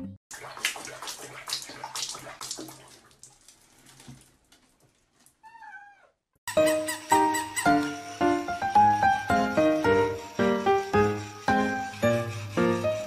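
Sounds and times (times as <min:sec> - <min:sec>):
water sloshing in a tub: 0:00.3 - 0:05.4
cat meowing: 0:05.4 - 0:06.2.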